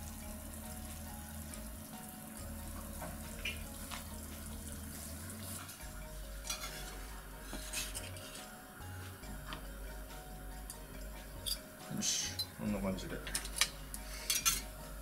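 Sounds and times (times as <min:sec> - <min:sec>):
utensils scraping a frying pan: 0:05.5 - 0:08.6, 0:13.4 - 0:14.8.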